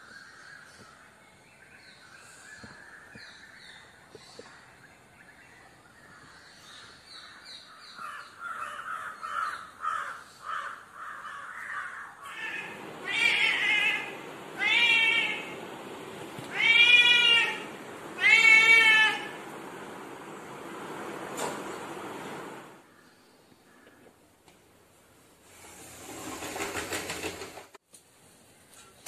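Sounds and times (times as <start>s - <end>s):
bird calls: 0.0s - 24.2s
cat meowing loudly: 12.2s - 15.6s, 16.4s - 19.4s.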